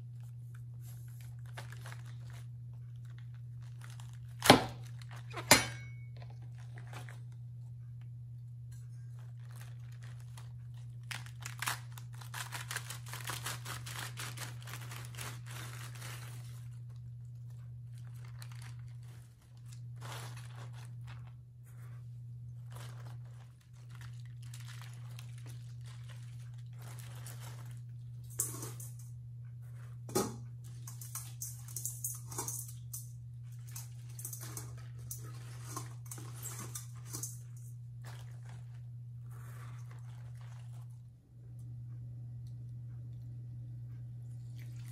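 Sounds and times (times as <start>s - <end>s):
steady low hum: 0.0s - 44.9s
cabbage leaves rustling and crunching: 0.9s - 5.4s, 6.4s - 7.4s, 9.2s - 17.0s, 18.0s - 21.4s, 22.6s - 28.9s, 33.6s - 41.0s.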